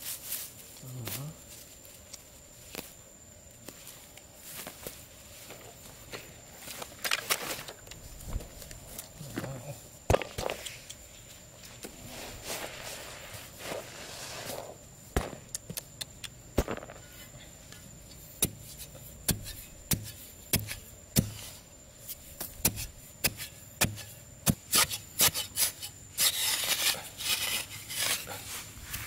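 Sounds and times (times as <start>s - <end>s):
soil scraped by hand: 10.4s - 14.8s, 18.3s - 29.0s
digging tool chopping earth: 15.2s - 15.8s, 18.4s - 21.5s, 22.4s - 28.4s.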